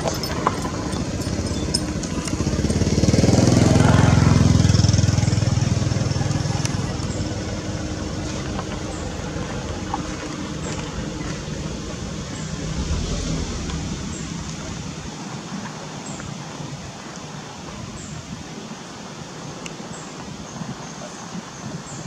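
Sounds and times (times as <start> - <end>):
low hum: 9.0 - 15.6.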